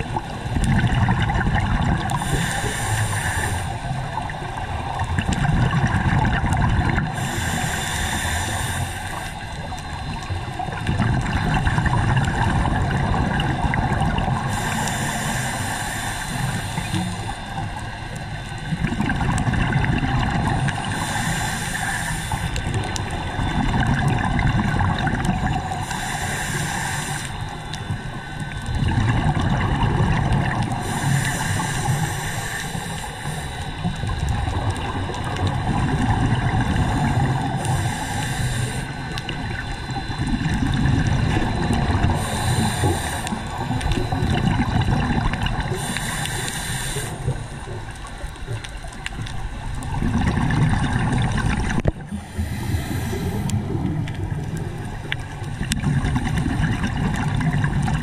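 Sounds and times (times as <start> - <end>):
exhaled bubbles rushing: 0.0 - 7.7, 9.7 - 14.8, 18.6 - 21.0, 22.4 - 25.9, 28.4 - 30.9, 33.8 - 38.0, 39.0 - 46.0, 47.3 - 58.0
regulator inhale hiss: 2.0 - 5.0, 6.8 - 11.4, 13.0 - 18.8, 20.4 - 23.6, 25.5 - 28.9, 30.2 - 44.8, 45.5 - 48.6, 51.8 - 55.8.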